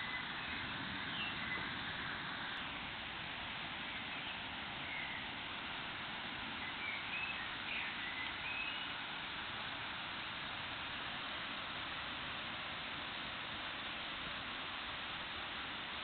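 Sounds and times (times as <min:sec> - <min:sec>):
bird chirping: 0:00.0 - 0:02.6, 0:06.6 - 0:09.0
steady rain: 0:00.0 - 0:16.0.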